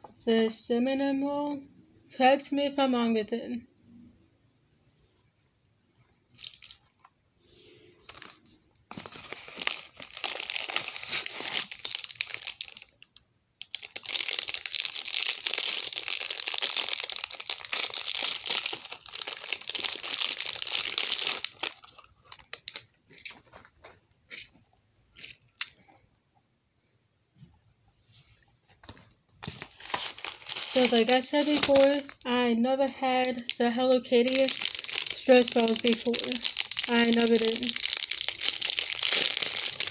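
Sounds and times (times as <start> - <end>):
plastic bag crinkling: 6.3 - 7.0, 8.0 - 24.5, 29.4 - 32.4, 33.0 - 39.9.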